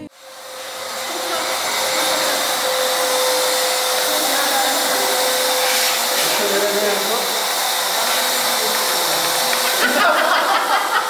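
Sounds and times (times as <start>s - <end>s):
balloon pump air rush: 0.0s - 10.2s
pump motor whine: 0.0s - 11.0s.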